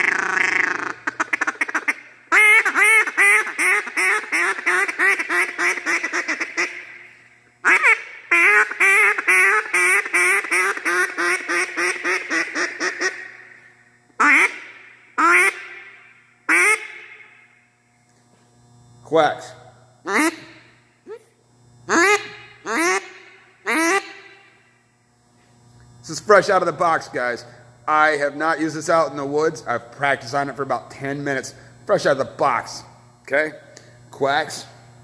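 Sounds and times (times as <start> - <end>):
duck call quacks: 0.0 - 6.9, 7.6 - 13.3, 14.2 - 15.8, 16.5 - 17.1, 20.1 - 20.5, 21.9 - 23.1, 23.7 - 24.1.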